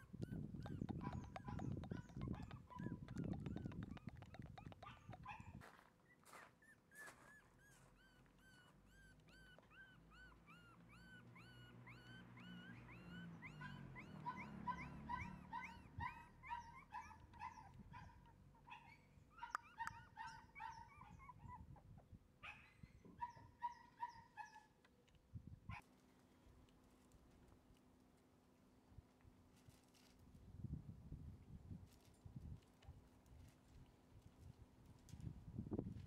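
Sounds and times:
puppy whining: 0:00.0 - 0:24.6.

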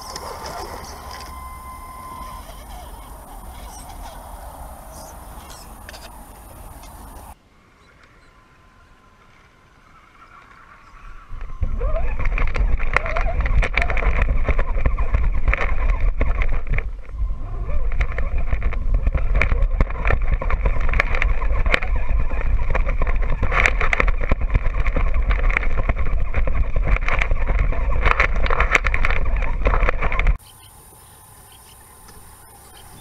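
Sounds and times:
chassis rattling over rough ground: 0:00.0 - 0:07.4, 0:09.8 - 0:33.0
heavy low rumble: 0:00.0 - 0:07.4, 0:11.2 - 0:30.4
electric drivetrain whining: 0:00.0 - 0:33.0.

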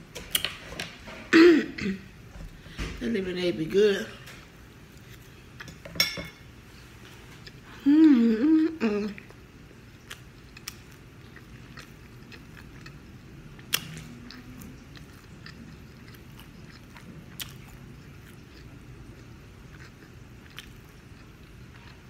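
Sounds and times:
person chewing food: 0:04.8 - 0:05.8, 0:06.5 - 0:07.9, 0:09.2 - 0:22.0.

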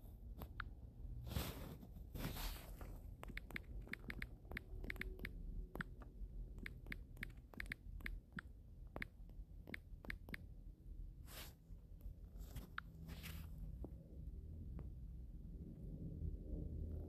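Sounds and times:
tapping on phone screen: 0:03.2 - 0:10.4.

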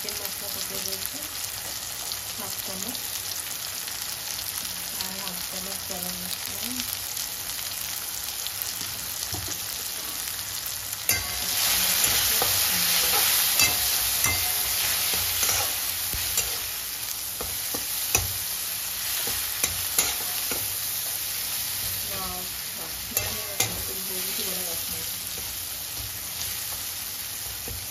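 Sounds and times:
beans sizzling in oil: 0:00.0 - 0:27.9.

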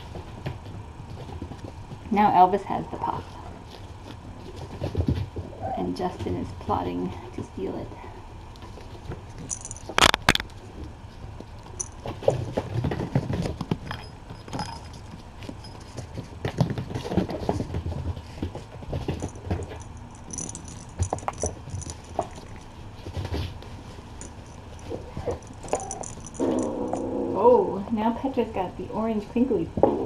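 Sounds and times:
paw patter: 0:00.0 - 0:02.1, 0:03.0 - 0:05.6, 0:08.4 - 0:27.1
kittens playing on floor: 0:00.0 - 0:27.4
rustles: 0:02.9 - 0:27.6
crinkle: 0:08.5 - 0:27.0
faint jingle: 0:19.2 - 0:22.7, 0:24.2 - 0:27.1.

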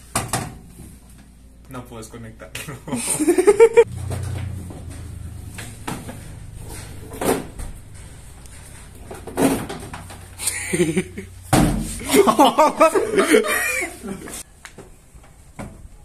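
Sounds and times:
person laughing: 0:02.6 - 0:03.9, 0:10.4 - 0:11.4, 0:12.0 - 0:14.4.

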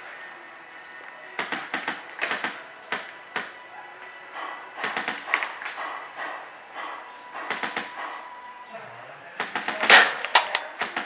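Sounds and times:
paintball markers firing: 0:09.5 - 0:11.0.

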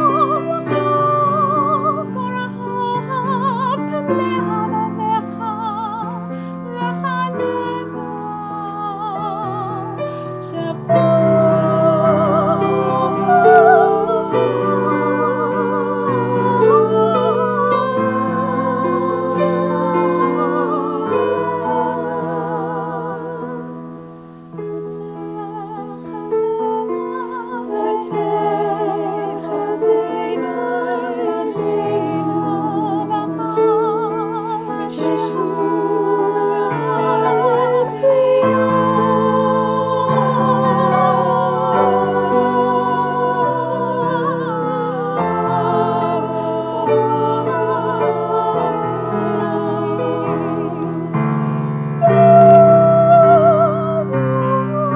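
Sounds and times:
piano: 0:00.0 - 0:54.9
women singing in harmony: 0:00.0 - 0:54.9.

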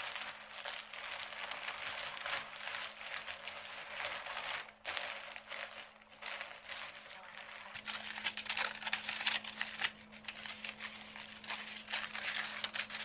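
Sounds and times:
faint steady hum: 0:00.0 - 0:13.0
food packaging crinkling: 0:00.0 - 0:13.0.

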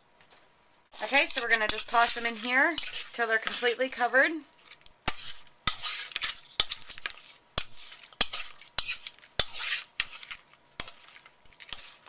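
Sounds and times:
wet scraping swishes: 0:01.0 - 0:03.8.

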